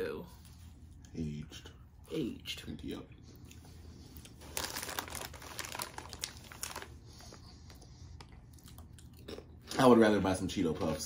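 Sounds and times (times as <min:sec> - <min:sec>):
snack wrapper crinkling: 0:04.2 - 0:09.5.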